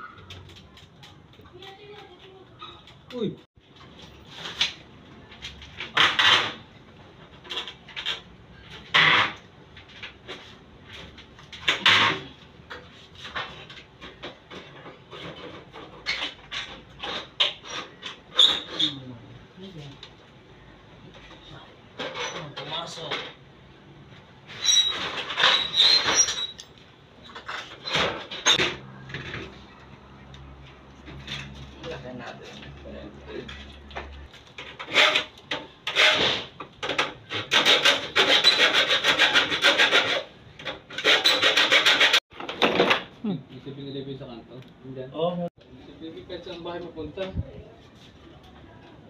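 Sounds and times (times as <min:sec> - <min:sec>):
sliding door rattling and scraping: 0:05.7 - 0:18.7, 0:24.5 - 0:26.6, 0:27.2 - 0:29.7, 0:34.6 - 0:43.1.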